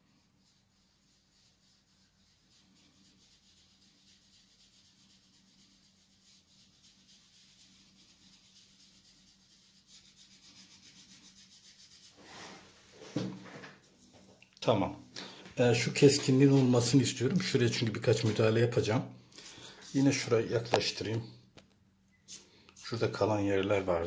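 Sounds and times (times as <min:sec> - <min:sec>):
cloth rubbing on paper: 0:00.0 - 0:14.2, 0:19.4 - 0:21.1.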